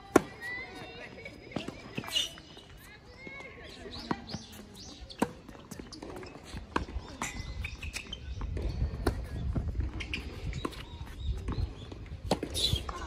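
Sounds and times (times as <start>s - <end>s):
tennis ball hits and bounces: 0.1s - 0.9s, 3.9s - 13.0s.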